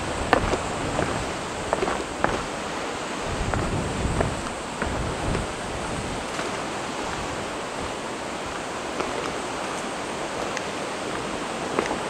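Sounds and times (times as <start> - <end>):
sea surf breaking on rocks: 0.0 - 12.0.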